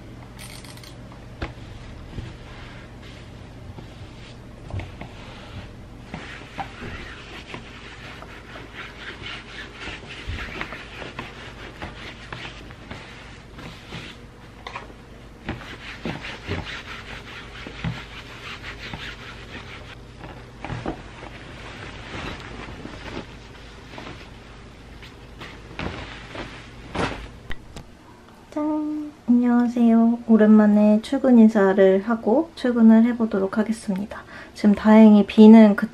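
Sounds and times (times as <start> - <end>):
iron rubbing over shirt: 1.4 - 27.4
fabric rustling: 1.4 - 27.7.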